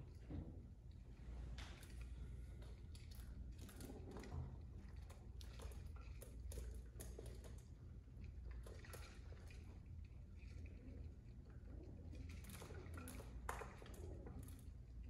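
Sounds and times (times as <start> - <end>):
pigeons pecking plastic dishes: 2.6 - 15.0.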